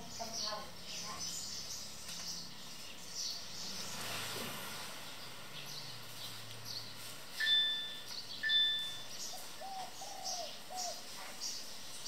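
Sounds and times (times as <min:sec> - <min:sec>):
bell-like chime notes: 0:07.4 - 0:09.1.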